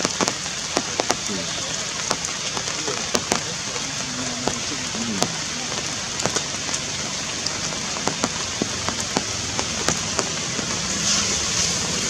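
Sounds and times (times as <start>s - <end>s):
rain pattering on foliage: 0.0s - 12.0s.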